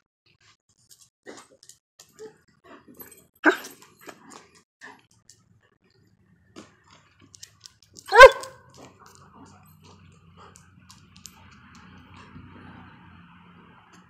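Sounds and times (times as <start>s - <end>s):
dog barking: 3.4s - 3.8s, 8.0s - 9.2s.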